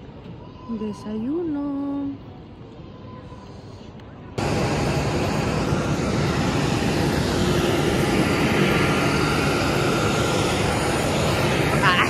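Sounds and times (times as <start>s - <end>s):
jet aircraft engines running: 4.4s - 12.0s.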